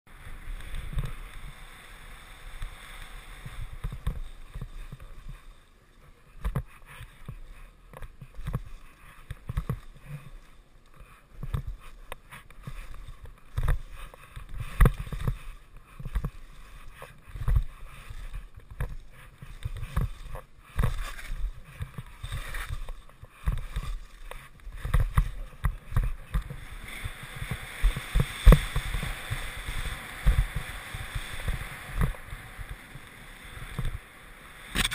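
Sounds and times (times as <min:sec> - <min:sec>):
wind hiss: 0:00.1 - 0:06.0, 0:26.2 - 0:34.9
skis scraping over snow: 0:00.1 - 0:34.9
skis thumping on bumps: 0:00.2 - 0:34.0.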